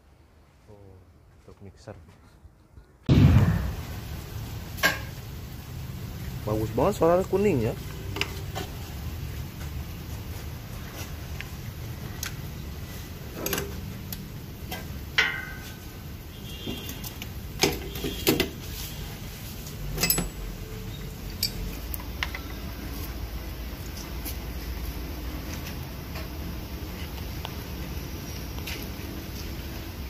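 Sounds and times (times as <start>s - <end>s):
low hum: 3.1s - 4.7s
metallic clinks of tools: 20.0s - 20.4s, 21.3s - 21.7s.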